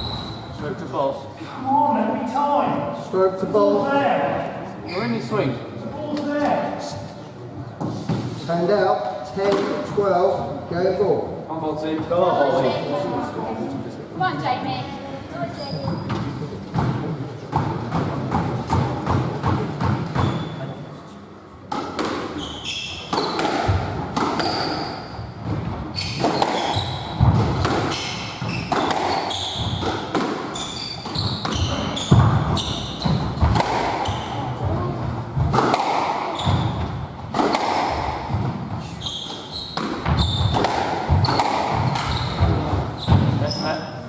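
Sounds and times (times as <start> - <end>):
squash ball hitting rackets and walls: 9.4 - 10.0, 15.8 - 20.6, 21.7 - 43.5
shoes squeaking on wooden floor: 15.5 - 16.5, 20.0 - 20.8, 22.3 - 35.5, 36.3 - 37.0, 38.0 - 43.8.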